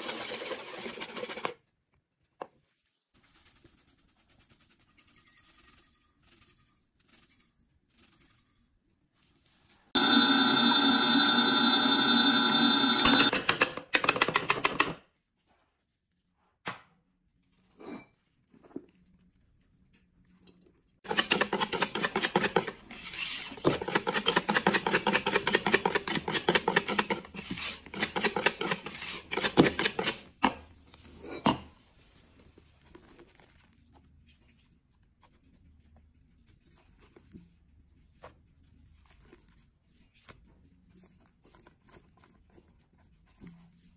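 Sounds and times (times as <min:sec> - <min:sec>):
whisk beating batter in plastic bowl: 0:00.0 - 0:01.7, 0:09.9 - 0:13.3, 0:21.1 - 0:30.4
stand mixer whining: 0:10.0 - 0:13.3
mixer rattle: 0:10.0 - 0:14.9.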